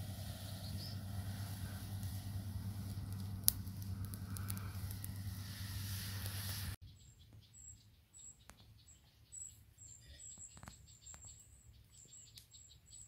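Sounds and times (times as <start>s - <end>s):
campfire crackling: 0.0s - 6.8s.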